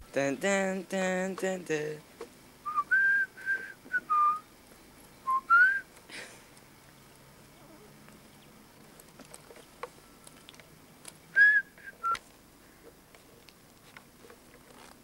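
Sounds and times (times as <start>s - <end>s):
short whistled notes: 2.7s - 4.4s, 5.2s - 5.8s, 11.4s - 12.2s
faint scattered clicks: 8.8s - 11.2s.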